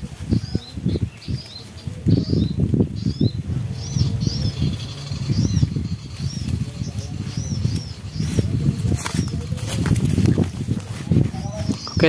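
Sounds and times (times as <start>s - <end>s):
high bird chirps: 0.3s - 9.8s
footsteps through dry grass: 6.1s - 11.8s.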